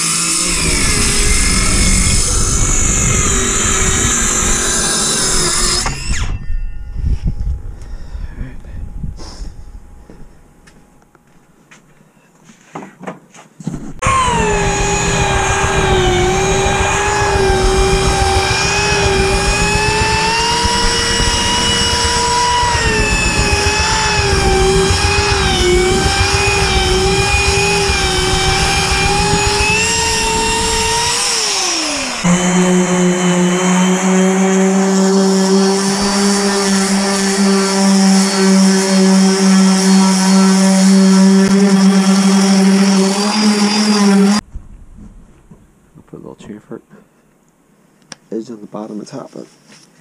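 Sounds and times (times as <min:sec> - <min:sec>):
lower sander hum: 0:00.0 - 0:06.4, 0:14.0 - 0:45.2
orbital sander whining: 0:00.0 - 0:06.5, 0:14.0 - 0:44.4
rough sanding noise: 0:14.0 - 0:44.4.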